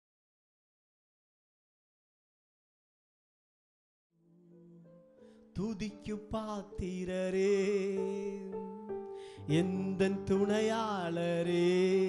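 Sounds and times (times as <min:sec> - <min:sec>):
instrumental worship music: 0:04.6 - 0:12.0.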